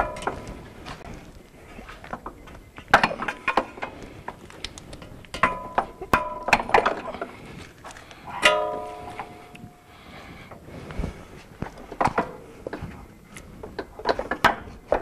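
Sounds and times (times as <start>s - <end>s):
metal clinks and knocks: 0.0s - 1.0s, 2.0s - 9.9s.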